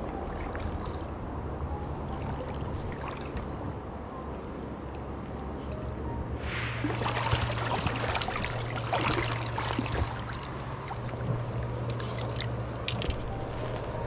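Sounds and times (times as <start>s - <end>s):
low hum: 0.0s - 14.0s
fish splashing at surface: 6.5s - 11.2s
river water running over cobbles: 6.8s - 13.2s.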